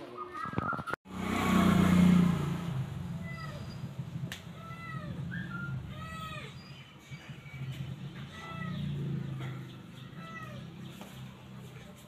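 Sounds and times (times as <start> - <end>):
puppies whining: 3.2 - 4.0, 4.6 - 10.9.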